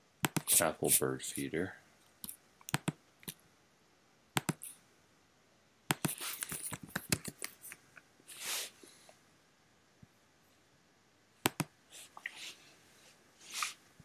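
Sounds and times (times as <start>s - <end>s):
computer mouse clicks: 0.2s - 0.6s, 2.2s - 3.4s, 4.4s - 4.7s, 11.4s - 11.7s.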